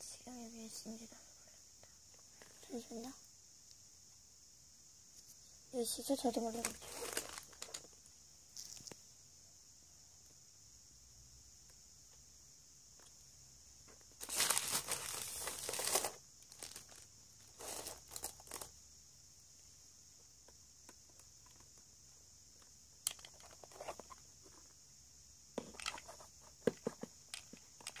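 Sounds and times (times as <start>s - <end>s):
crinkling and tearing material: 6.6s - 7.9s, 14.2s - 18.7s.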